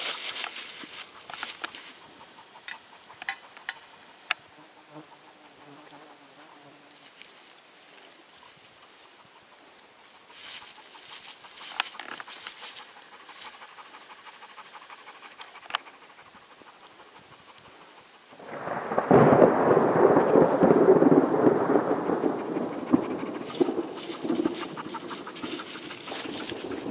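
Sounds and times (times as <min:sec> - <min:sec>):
rustling in dry leaves: 0:00.0 - 0:02.4, 0:06.2 - 0:16.5, 0:18.4 - 0:26.9.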